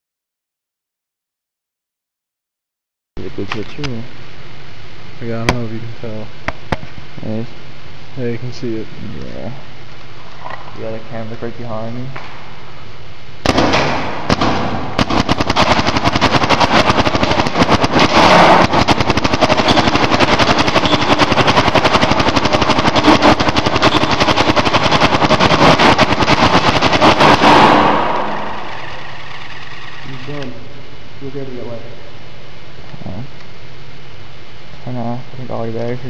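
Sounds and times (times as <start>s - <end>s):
paintball marker firing: 5.4s - 5.7s, 13.4s - 30.5s.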